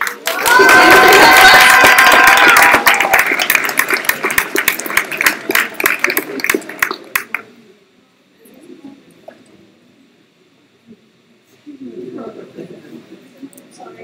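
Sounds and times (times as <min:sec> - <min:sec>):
small audience applauding: 0:00.0 - 0:07.5.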